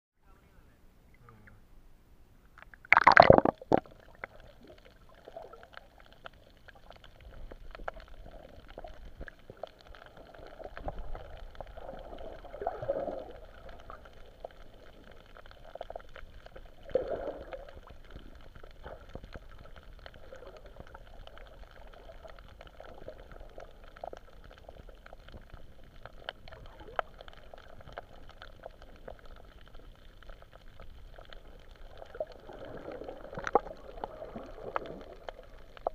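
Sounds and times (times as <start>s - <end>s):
splash into water: 2.9s - 3.9s
muffled underwater gurgling: 2.9s - 35.9s.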